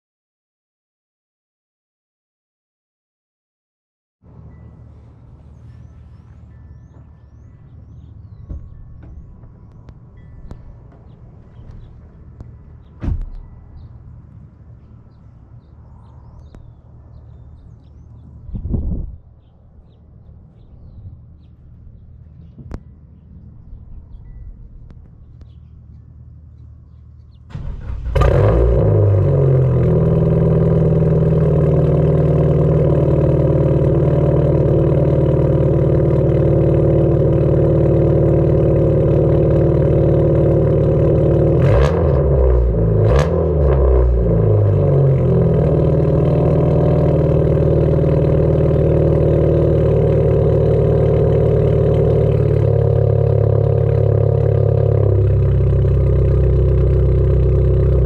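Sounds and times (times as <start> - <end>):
car engine idling: 4.3 - 18.7, 19.4 - 58.0
car engine starting: 23.7 - 58.0
engine revving: 27.4 - 58.0.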